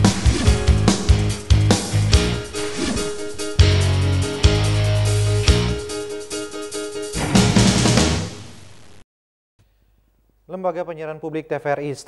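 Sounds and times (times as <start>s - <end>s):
news theme music: 0.0s - 8.7s.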